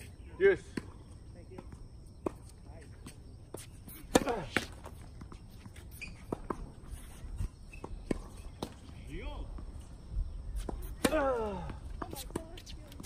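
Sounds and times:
tennis balls and shoes on court: 0.0s - 13.0s.

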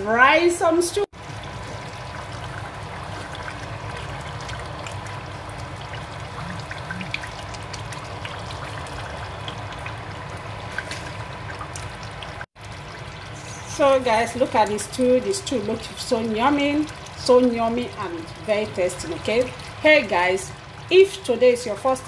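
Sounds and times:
stew bubbling in a pot: 1.1s - 22.0s.

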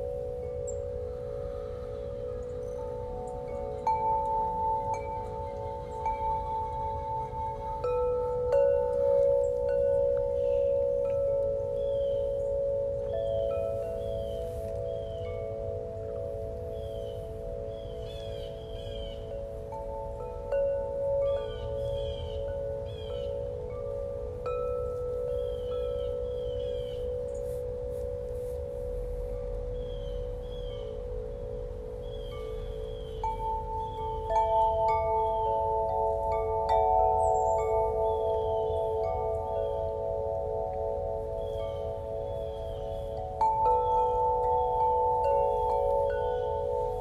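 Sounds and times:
high chirping glides: 0.0s - 47.0s
ringing chime tones: 0.0s - 47.0s
singing bowl drone: 0.0s - 47.0s.

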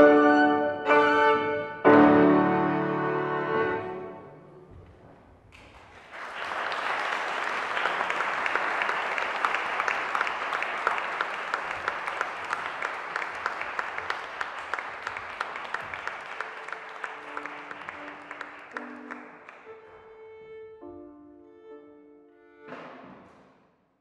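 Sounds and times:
audience applauding: 5.5s - 19.9s.

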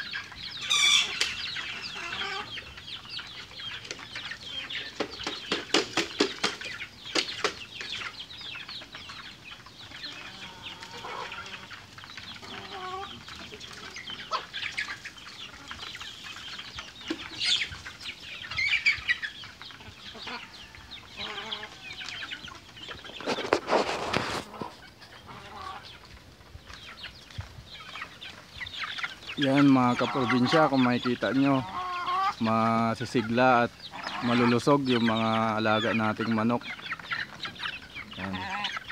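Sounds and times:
chickens clucking: 0.0s - 38.9s
wings flapping: 4.9s - 8.1s.

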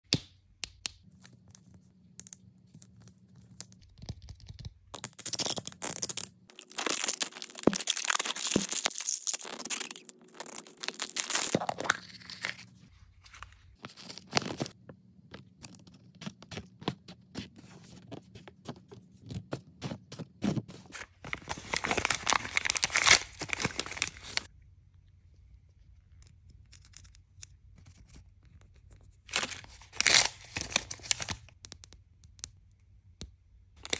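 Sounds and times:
plastic wrappers tearing and crinkling: 5.0s - 12.7s, 21.2s - 24.5s, 29.3s - 31.6s.

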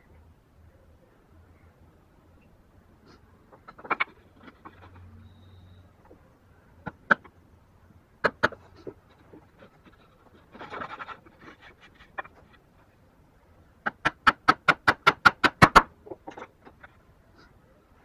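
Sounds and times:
scraping and light clicks: 3.0s - 5.2s, 8.5s - 13.0s.

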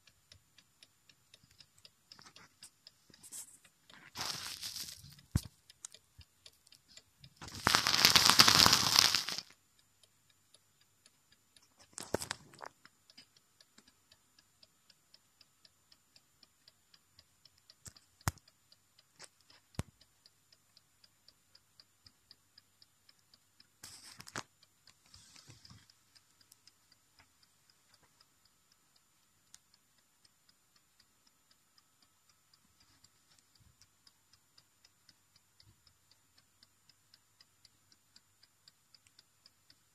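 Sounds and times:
clock ticking: 0.0s - 39.9s.

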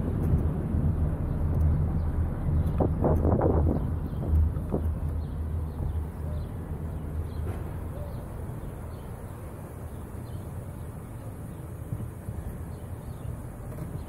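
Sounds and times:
wind rumble on microphone: 0.0s - 9.0s
car engine idling: 0.0s - 14.0s.

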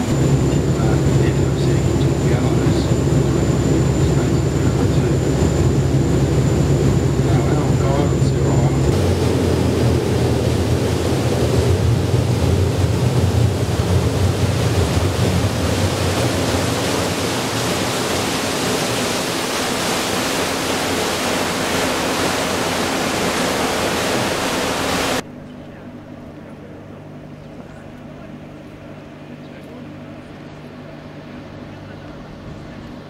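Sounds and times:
wind and water rushing: 0.0s - 25.2s
low boat engine drone: 0.0s - 33.0s.

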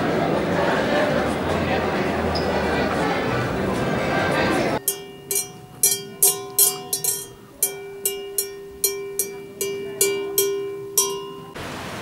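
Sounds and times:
cowbell clanging: 4.8s - 11.6s.

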